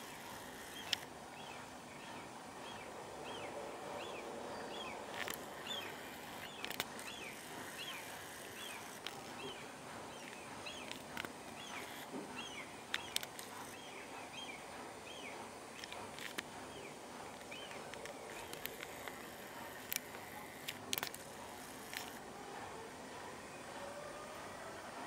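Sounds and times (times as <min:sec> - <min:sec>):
small bird chirping: 0:00.0 - 0:16.0
outdoor background hiss: 0:00.0 - 0:25.0
sharp clicks: 0:12.9 - 0:13.8, 0:17.4 - 0:22.2.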